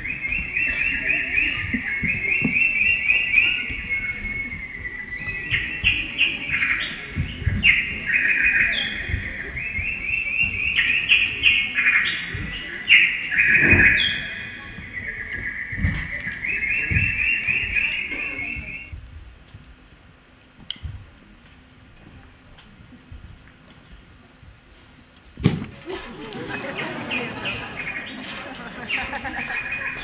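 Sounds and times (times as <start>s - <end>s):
bird-like whistling trills: 0.0s - 19.0s.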